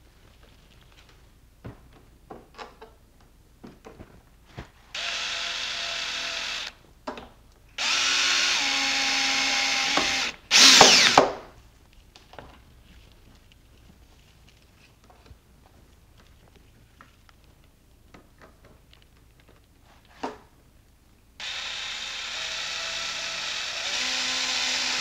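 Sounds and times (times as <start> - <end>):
cordless drill driving screws: 5.0 - 6.7, 7.8 - 11.3, 21.4 - 25.0.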